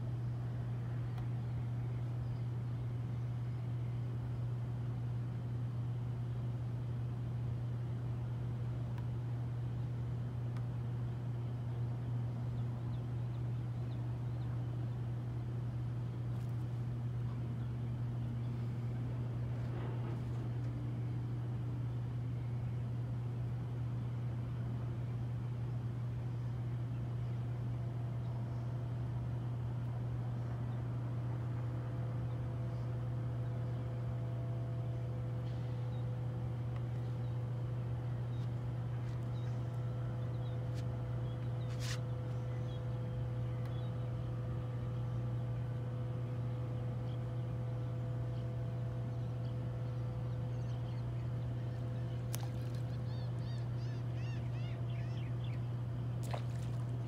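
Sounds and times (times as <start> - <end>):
steady low hum: 0.0 - 57.0
fish splashing in water: 56.2 - 57.0.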